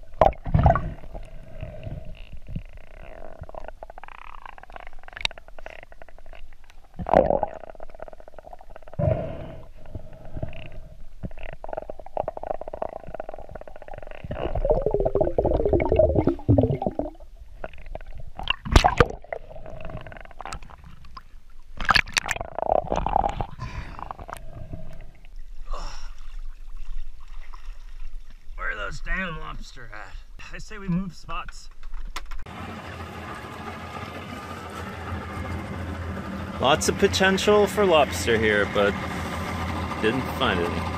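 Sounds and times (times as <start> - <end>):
warbling bubbling: 0.0 - 25.4
underwater rumbling and gurgling: 0.0 - 28.6.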